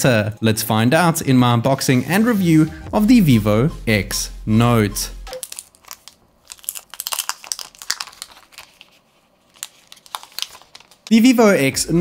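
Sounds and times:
plastic film crinkling as peeled: 5.4s - 11.4s.

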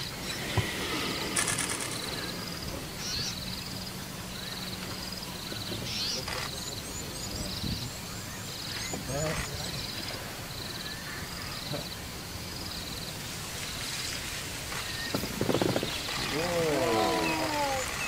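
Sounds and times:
birds rasping calls: 0.0s - 18.0s
outdoor background noise: 0.0s - 18.0s.

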